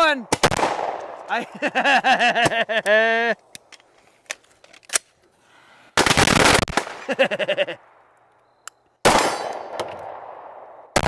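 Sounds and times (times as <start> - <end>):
pistol shots: 0.2 - 1.2, 9.0 - 11.0.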